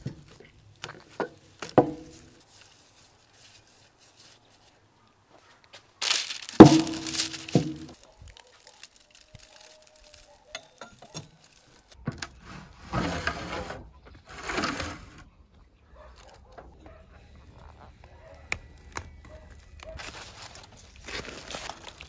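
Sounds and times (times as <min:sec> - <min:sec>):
aluminium foil crinkling: 0:06.0 - 0:12.0, 0:17.5 - 0:22.0.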